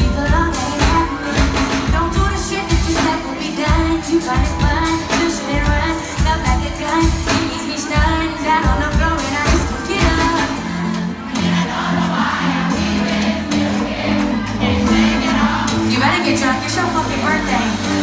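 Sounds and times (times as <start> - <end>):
woman singing into a microphone: 0.0 - 11.2
r and b music: 0.0 - 18.0.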